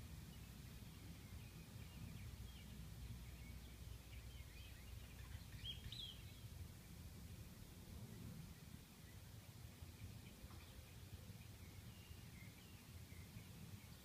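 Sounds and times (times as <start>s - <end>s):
low wind rumble: 0.0s - 14.0s
bird peeps and chirps: 0.4s - 6.5s.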